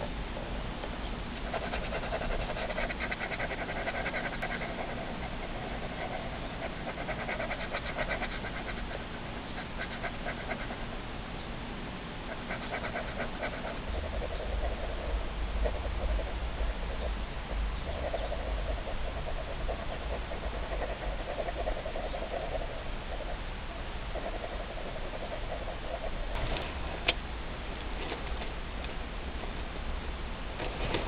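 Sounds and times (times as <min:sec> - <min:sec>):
pen scribbling on paper: 0:01.4 - 0:10.8, 0:12.3 - 0:13.8.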